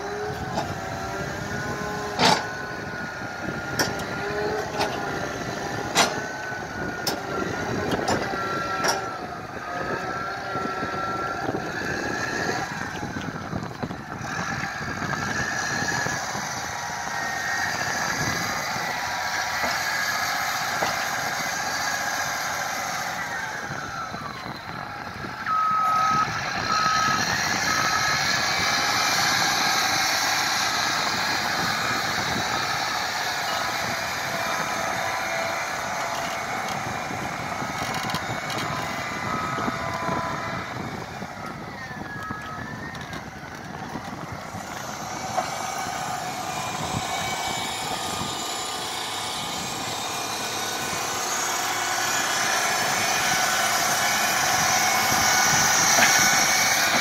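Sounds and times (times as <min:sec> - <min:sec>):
diesel engine running: 0:00.0 - 0:57.0
reverse alarm beeps: 0:25.5 - 0:28.1.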